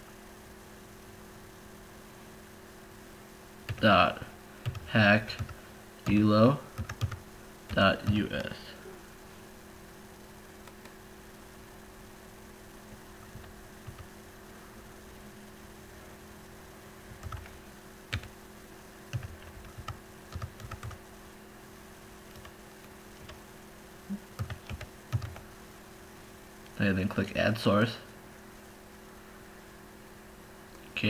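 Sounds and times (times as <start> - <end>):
low electrical hum: 0.0 - 31.0
computer keyboard typing: 3.7 - 3.9, 4.6 - 8.5, 13.2 - 14.1, 17.1 - 17.5, 18.1 - 18.3, 19.1 - 21.0, 22.3 - 23.4, 24.3 - 25.5.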